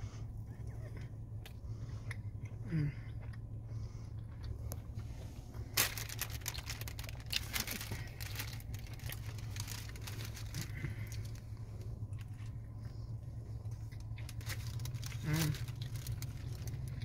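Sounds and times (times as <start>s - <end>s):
steady low hum: 0.0s - 17.0s
paper wrappers crinkling: 5.7s - 11.4s, 14.0s - 17.0s.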